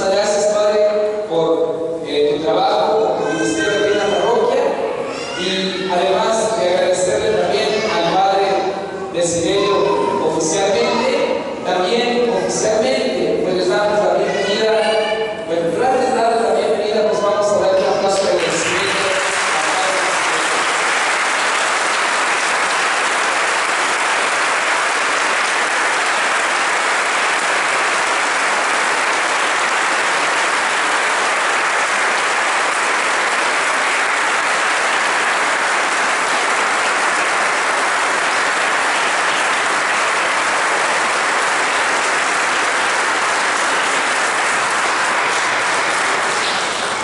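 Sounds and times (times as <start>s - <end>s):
crowd applauding: 3.2s - 5.6s, 18.1s - 47.0s.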